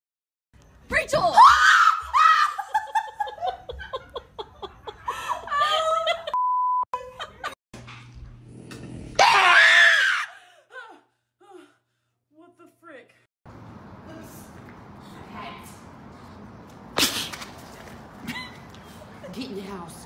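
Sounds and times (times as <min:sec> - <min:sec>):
women screaming: 0:01.3 - 0:02.9, 0:09.2 - 0:10.4
women laughing: 0:02.2 - 0:06.4, 0:07.0 - 0:07.6, 0:18.2 - 0:19.5
bleep tone: 0:06.4 - 0:06.9.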